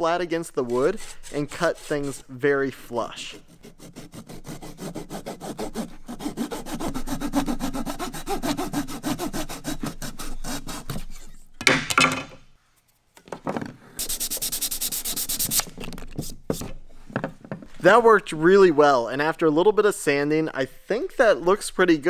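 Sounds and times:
sandpaper rubbing wood: 0:00.4 - 0:11.4, 0:14.0 - 0:16.8
pull saw cutting wood: 0:00.5 - 0:02.4, 0:03.2 - 0:11.4.

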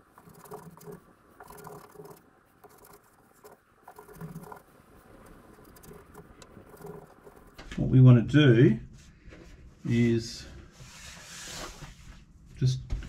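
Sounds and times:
paintbrush scratching on board: 0:00.0 - 0:07.6.

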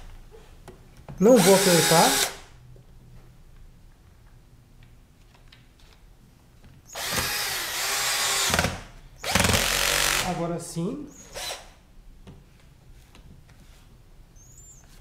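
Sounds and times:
cordless drill driving screw: 0:01.4 - 0:02.4, 0:06.9 - 0:10.3, 0:11.2 - 0:11.7.

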